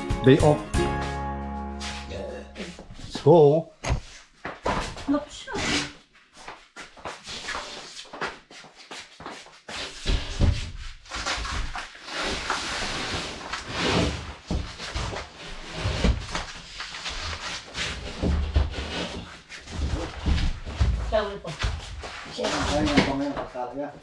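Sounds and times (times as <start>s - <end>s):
drywall board scraping: 5.5s - 6.0s, 7.2s - 8.2s, 9.7s - 23.5s.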